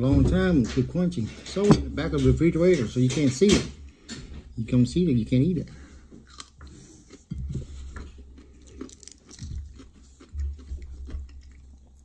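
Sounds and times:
person chewing crunchy food: 5.7 - 12.0.

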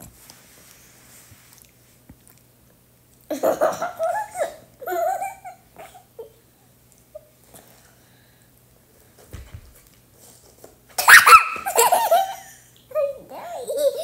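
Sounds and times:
young child squealing: 11.0 - 11.7.

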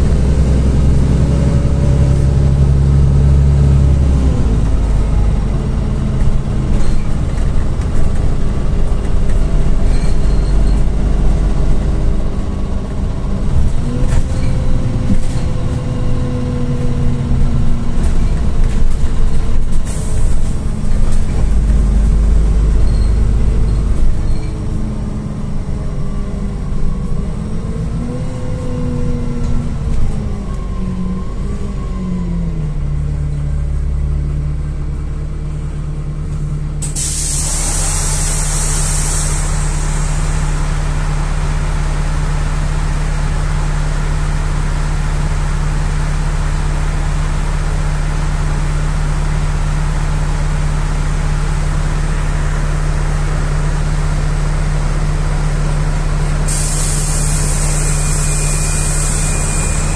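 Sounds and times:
bus engine idling: 0.0 - 59.9
compressed air hiss: 36.8 - 40.4, 56.5 - 59.9.

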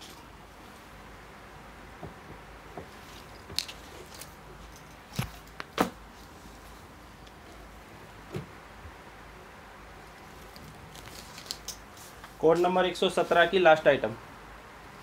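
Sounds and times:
fabric rustling: 10.0 - 13.5.

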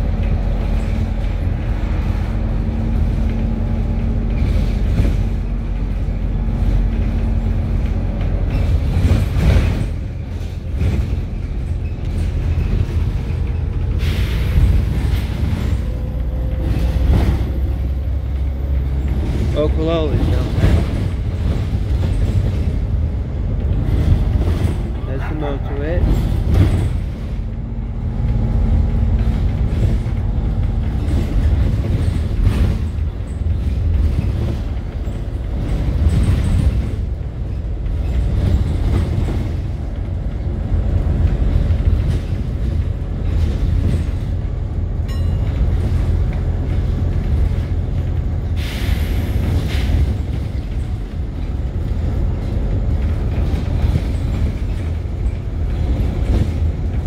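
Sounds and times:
bus engine and road rumble: 0.0 - 57.0.

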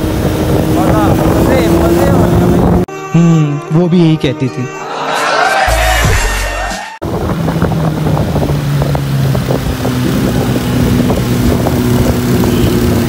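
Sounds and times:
motorcycle engine running: 0.0 - 2.9, 7.0 - 13.0
wind buffeting microphone: 0.0 - 2.9, 7.0 - 13.0
voice and music snippet: 2.9 - 7.0.

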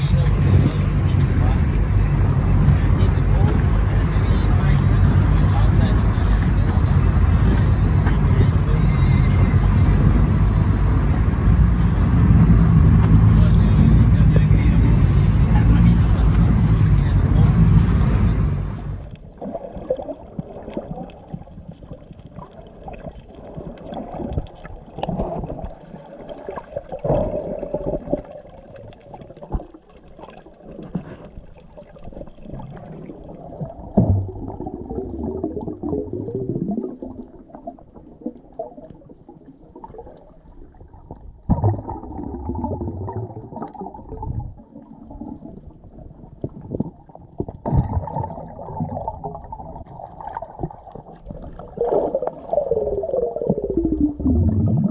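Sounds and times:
muffled underwater sloshing: 0.0 - 54.9.

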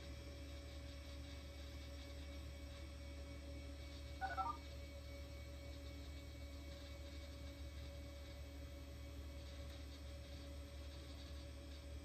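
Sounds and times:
steady low hum: 3.9 - 5.1
computer startup chirp: 4.2 - 4.6.

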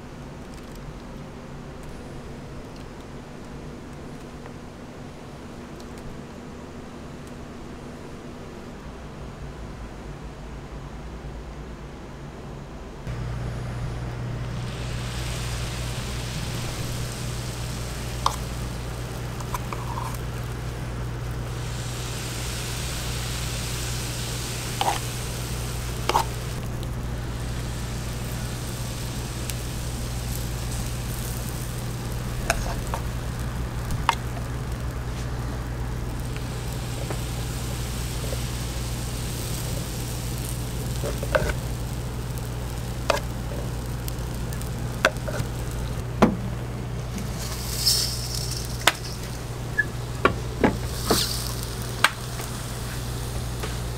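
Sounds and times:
low hum: 13.0 - 53.9
batter sizzling on waffle iron: 13.1 - 46.1, 47.0 - 53.9.

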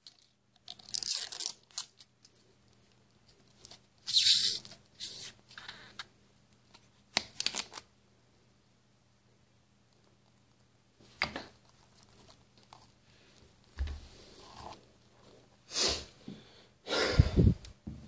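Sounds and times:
dull thump on wooden floor: 13.8 - 14.1.

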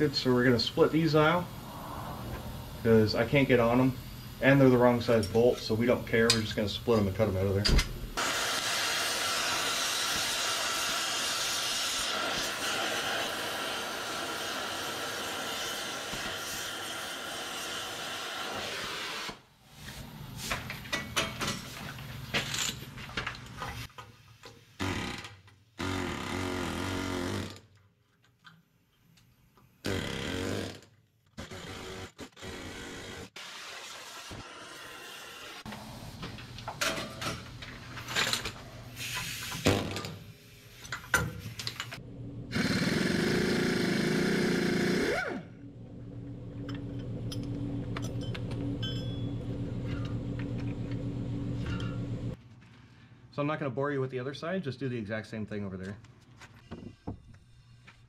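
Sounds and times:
pneumatic impact wrench: 8.0 - 19.5, 24.6 - 27.7, 29.8 - 35.7, 38.0 - 40.2, 40.8 - 45.6
cutting torch hissing: 8.2 - 19.5, 33.0 - 36.1, 42.5 - 45.3.

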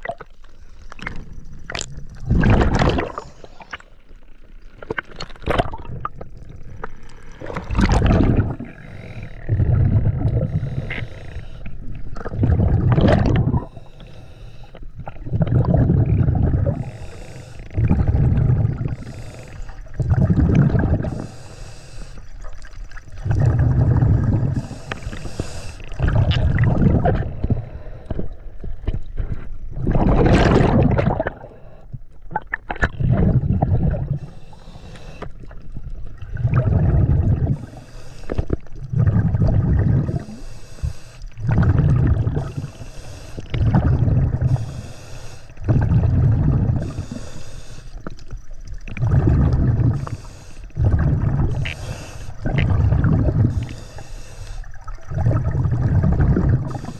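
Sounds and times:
exhale bubbles rushing: 1.7 - 3.8, 7.3 - 13.9, 15.0 - 21.5, 23.0 - 27.8, 29.7 - 31.6, 32.8 - 34.9, 35.6 - 48.0, 48.7 - 56.9
diver breathing through regulator: 7.9 - 12.2, 13.2 - 15.0, 16.2 - 22.4, 23.3 - 26.5, 33.9 - 35.6, 36.6 - 39.2, 39.8 - 48.4, 49.0 - 55.0, 55.6 - 56.9.

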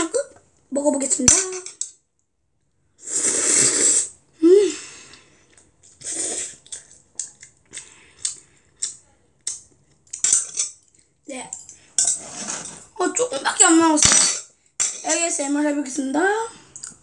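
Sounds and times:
child slurping noodles: 3.0 - 5.2, 6.0 - 6.8.

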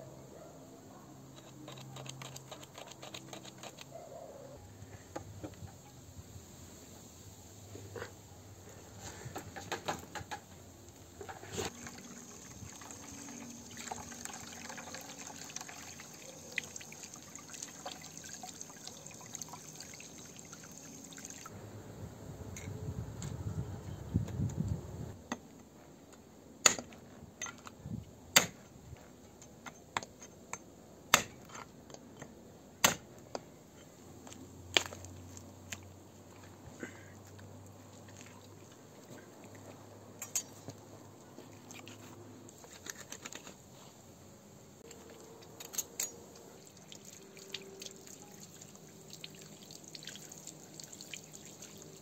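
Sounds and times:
hose water running into basin: 11.7 - 21.5, 46.3 - 52.0.

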